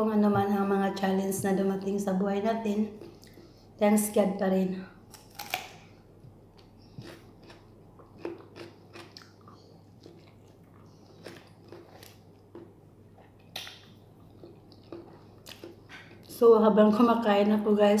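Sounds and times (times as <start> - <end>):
person chewing: 5.1 - 16.3
wet mouth clicks and smacks: 13.4 - 14.0.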